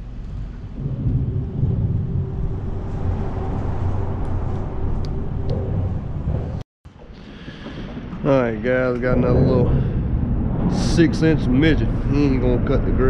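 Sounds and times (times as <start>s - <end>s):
vehicles rumbling over bridge: 0.7s - 6.6s.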